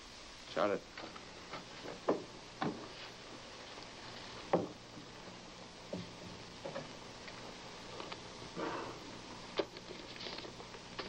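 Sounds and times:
television soundtrack hum and hiss: 0.0s - 11.0s.

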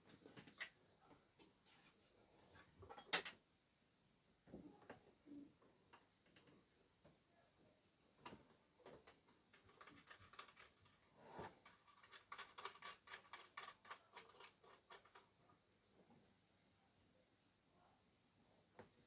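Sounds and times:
hands handling cable connectors: 8.2s - 15.3s.

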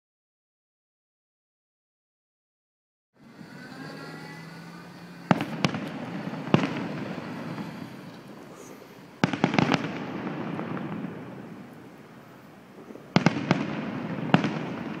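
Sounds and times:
low hum: 3.2s - 9.3s
fireworks bangs: 3.2s - 15.0s
rolling rumble: 3.2s - 15.0s.

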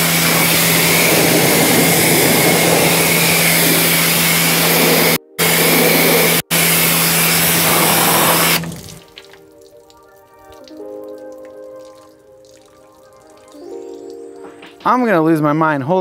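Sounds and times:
pressure washer spraying: 0.0s - 9.3s
water dripping: 8.6s - 15.1s
soft background music: 9.0s - 16.0s.

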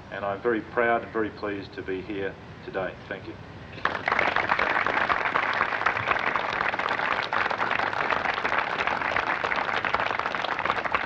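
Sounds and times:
audience applauding: 3.8s - 11.0s.

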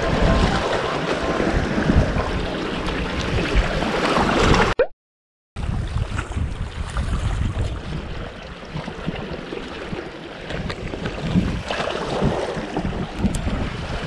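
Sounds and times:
wind buffeting microphone: 0.0s - 4.7s, 5.6s - 14.0s
waves washing against rocks: 5.7s - 14.0s.

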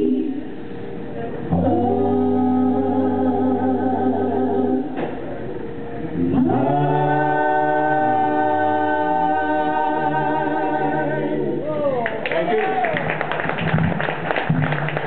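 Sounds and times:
vocal quartet singing: 0.0s - 11.8s
bass voice singing low notes: 1.4s - 11.8s.

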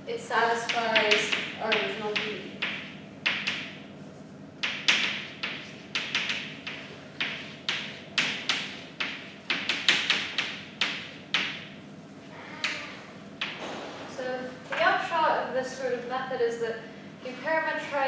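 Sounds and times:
chalk tapping and scratching: 0.6s - 12.8s.

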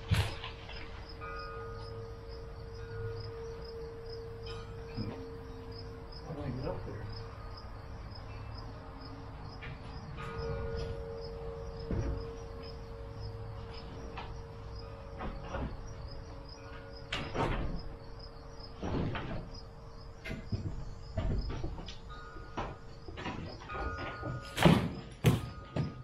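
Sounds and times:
wooden knocks and creaks: 0.0s - 7.6s, 9.5s - 26.0s
crickets chirping: 0.0s - 26.0s.

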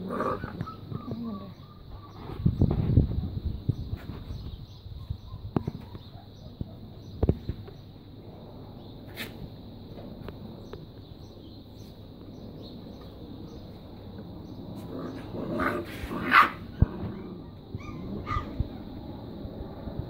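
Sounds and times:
puppies yipping and yelping: 0.3s - 2.2s, 17.0s - 18.8s.

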